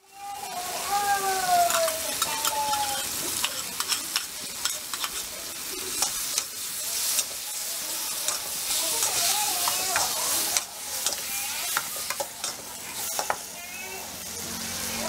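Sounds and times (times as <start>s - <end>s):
food sizzling in a wok: 0.0s - 15.0s
metal spatula scraping a wok: 5.9s - 13.8s.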